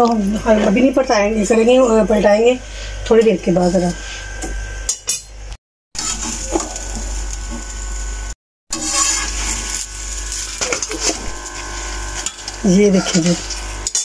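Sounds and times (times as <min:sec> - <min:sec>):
metal tongs scraping iron pan: 0:08.7 - 0:09.8, 0:12.2 - 0:14.0.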